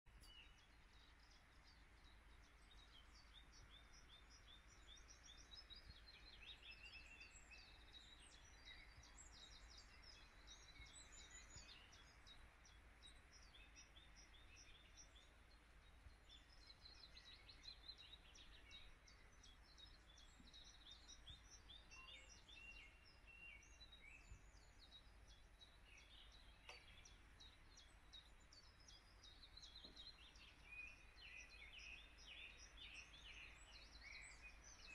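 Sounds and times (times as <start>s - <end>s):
songbirds chirping and singing: 0.1s - 34.9s.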